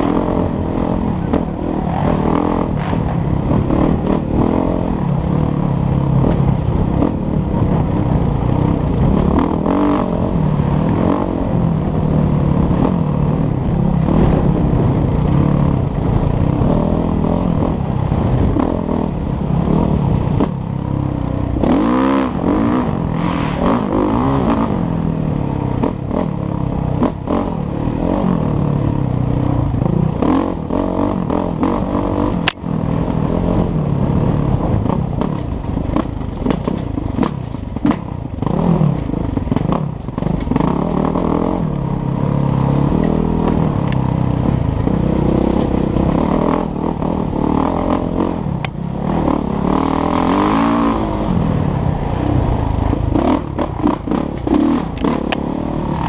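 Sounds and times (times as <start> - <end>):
dirt bike engine revving: 0.0 - 56.0
bike knocks and rattles: 34.8 - 41.1.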